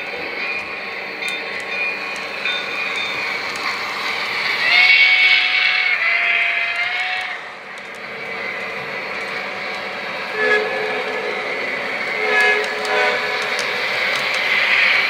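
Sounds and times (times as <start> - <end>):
model trains running on track: 0.0 - 15.0
model steam locomotive whistle: 4.6 - 7.5, 10.2 - 15.0.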